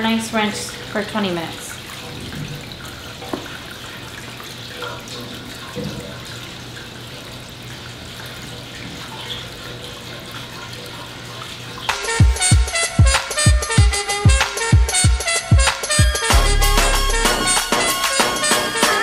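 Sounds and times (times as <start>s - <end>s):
water sloshing in tray: 0.0s - 12.0s.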